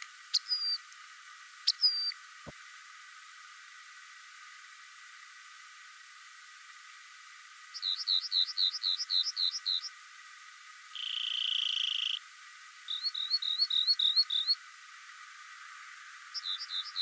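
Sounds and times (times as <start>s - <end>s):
wren singing: 0.0s - 0.8s, 1.6s - 2.2s, 7.7s - 10.0s, 10.9s - 12.2s, 12.9s - 14.6s, 16.2s - 17.0s
buzzy bird trill: 0.3s - 0.8s, 1.6s - 2.2s, 7.7s - 10.0s, 10.9s - 12.2s, 12.8s - 14.6s, 16.2s - 17.0s.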